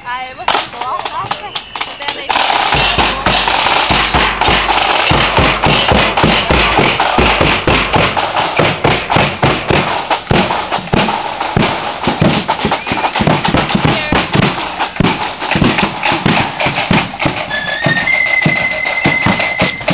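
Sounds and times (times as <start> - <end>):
marching band playing: 0.4 - 19.9
fast drum strikes: 0.5 - 19.9
held high note rising in pitch: 17.4 - 19.9.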